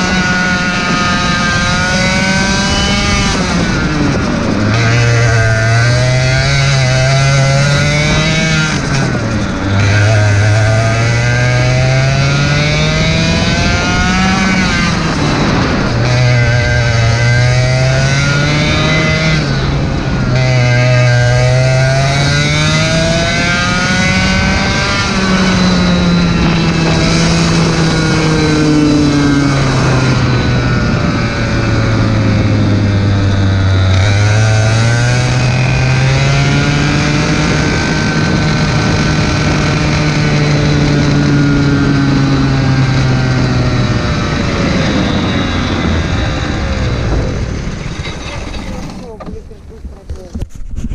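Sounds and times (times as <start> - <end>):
kart engine accelerating and slowing: 0.0 - 50.9.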